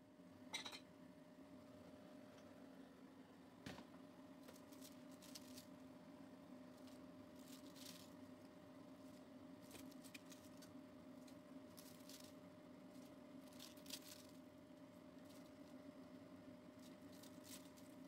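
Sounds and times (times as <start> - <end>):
low steady hum: 0.0 - 18.0
cabbage leaves crinkling: 4.4 - 5.8, 6.6 - 16.0, 16.6 - 18.0.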